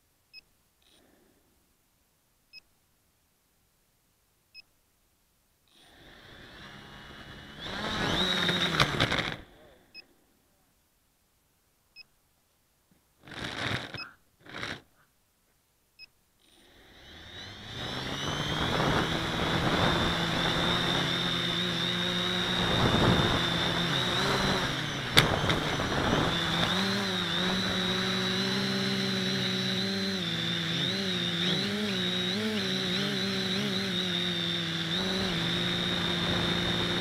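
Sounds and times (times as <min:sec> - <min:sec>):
quadcopter motors whining: 0:05.7 - 0:09.8, 0:13.2 - 0:14.9, 0:16.4 - 0:37.0.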